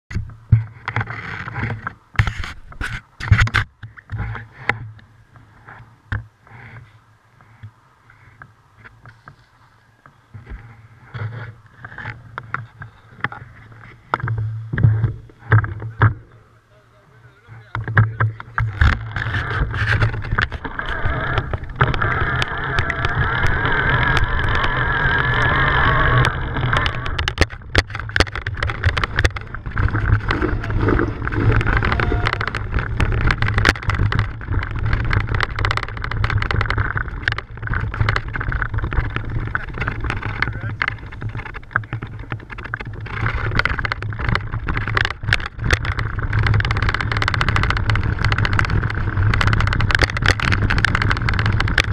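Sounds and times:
wind rumbling on microphone: 0.1s - 51.9s
bike rattling and knocking: 17.6s - 51.9s.

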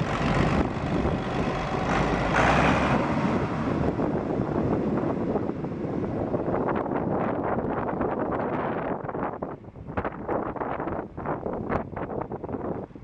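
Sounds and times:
tractor diesel engine running: 0.0s - 7.8s
wind noise on microphone: 0.0s - 13.0s.

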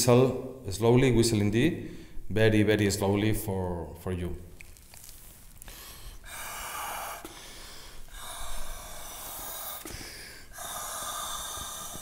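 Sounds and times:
breath blown through a blowpipe: 5.7s - 12.0s.

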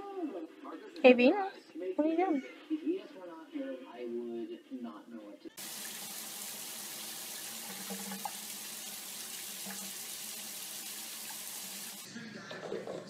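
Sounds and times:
tap water splashing into basin: 5.6s - 12.0s.

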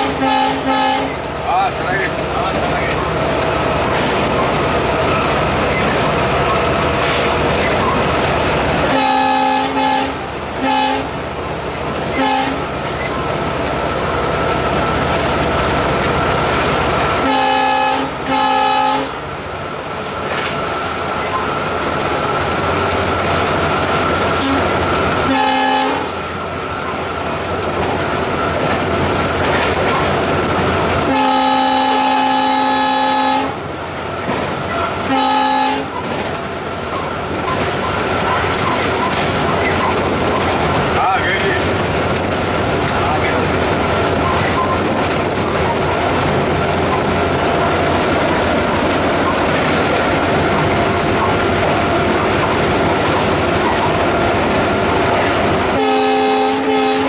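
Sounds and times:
locomotive horn blasts: 0.0s - 1.2s, 8.8s - 11.1s, 12.1s - 12.6s, 17.2s - 19.2s, 24.4s - 26.2s, 31.0s - 33.6s, 35.0s - 36.0s, 55.7s - 57.0s
locomotive and wheels running: 0.0s - 57.0s.

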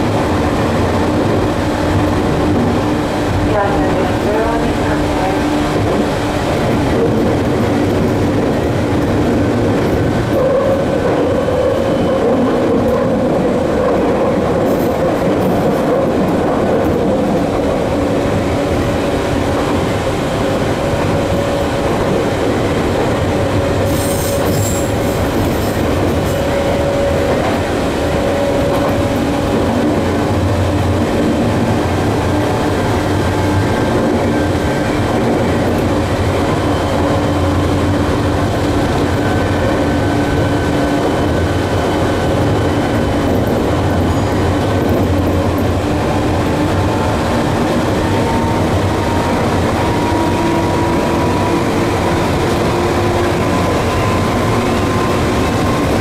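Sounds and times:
train wheels rolling: 0.0s - 56.0s
wind noise: 0.0s - 56.0s
wheels squealing: 23.5s - 29.8s.

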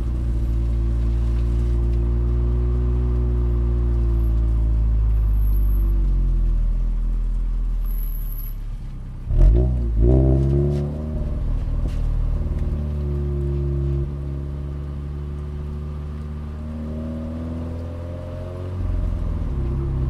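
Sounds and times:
car engine revving: 9.2s - 20.0s.

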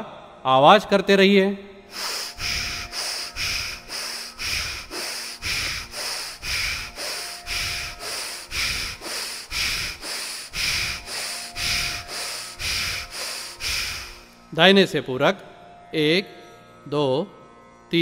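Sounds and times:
forceful rapid nose breathing: 1.9s - 14.5s.

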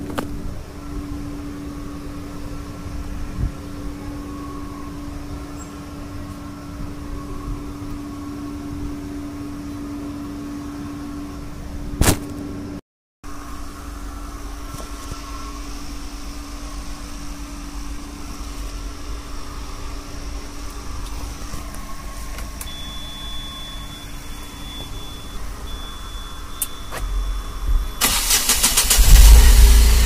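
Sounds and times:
engine idling: 27.4s - 30.0s.

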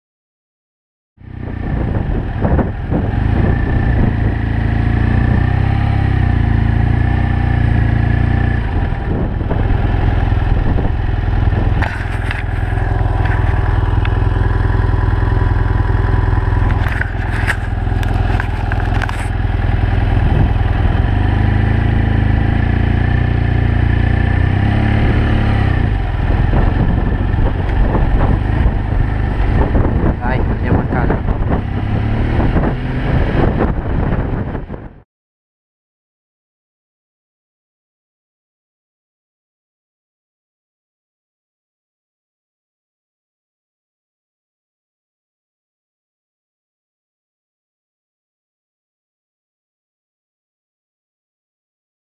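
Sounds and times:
motorcycle engine running: 1.2s - 35.0s
wind on microphone: 1.4s - 5.7s, 8.6s - 14.0s, 16.5s - 21.4s, 24.6s - 35.0s.

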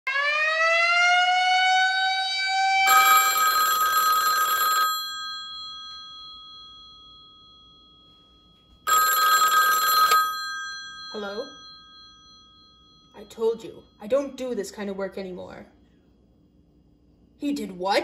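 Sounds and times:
siren wailing: 0.1s - 3.0s
telephone bell ringing: 2.9s - 14.0s.

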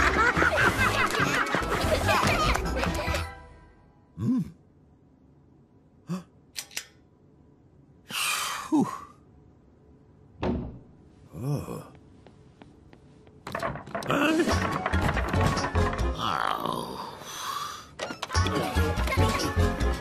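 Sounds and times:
cartoon grunts: 4.2s - 4.6s
clattering: 13.4s - 16.1s.

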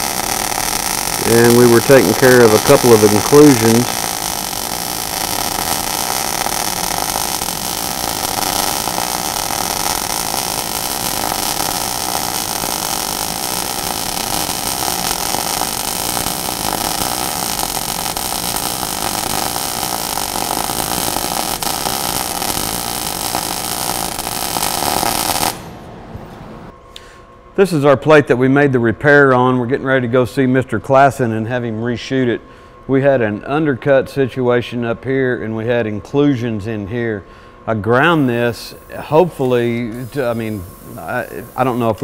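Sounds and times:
welding arc hissing and buzzing: 0.0s - 25.9s, 38.0s - 42.0s.

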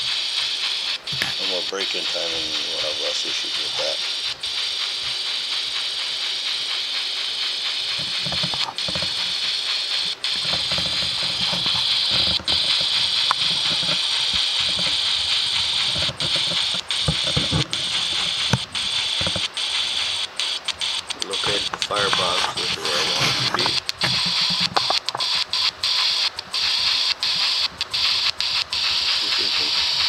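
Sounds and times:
model train steam sounds: 0.0s - 30.0s
gear mechanism rattling: 7.8s - 20.1s.

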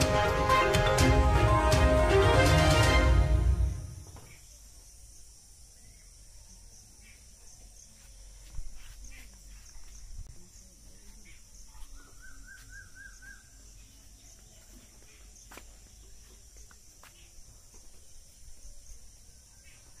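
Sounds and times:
bird chirps: 5.8s - 20.0s.

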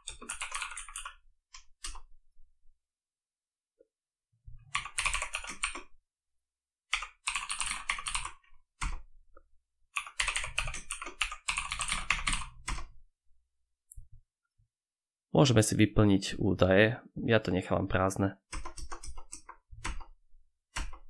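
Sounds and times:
computer keyboard typing: 0.0s - 2.1s, 4.7s - 5.9s, 6.9s - 9.0s, 10.0s - 12.9s, 18.5s - 21.0s.

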